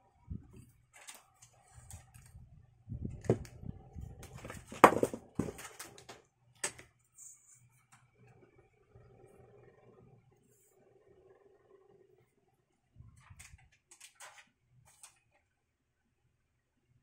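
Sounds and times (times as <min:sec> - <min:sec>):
plastic hose rustling and thumping: 0:03.1 - 0:03.6, 0:04.2 - 0:06.2.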